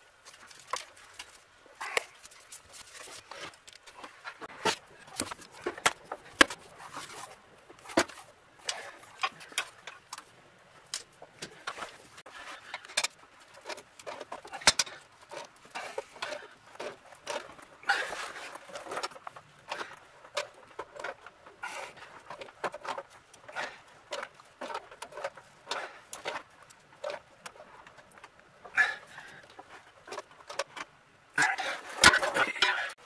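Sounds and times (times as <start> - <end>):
tools clicking and knocking: 12.6 - 17.7.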